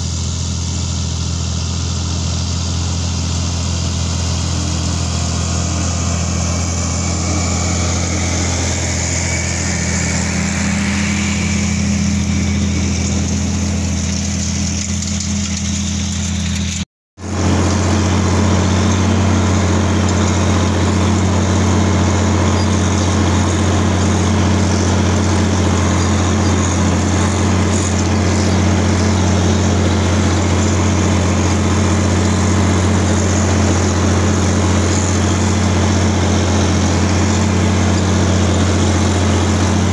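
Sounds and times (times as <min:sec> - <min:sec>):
tractor engine running under load: 0:00.0 - 0:39.9.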